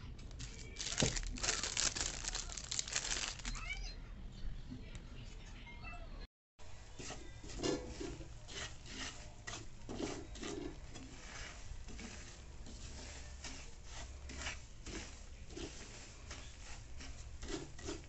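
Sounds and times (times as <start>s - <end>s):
spatula scraping frying pan: 6.8s - 18.0s.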